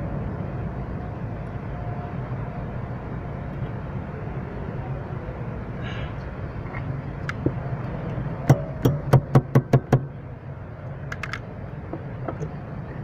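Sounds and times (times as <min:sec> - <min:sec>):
hand tapping on metal: 0:08.5 - 0:10.0.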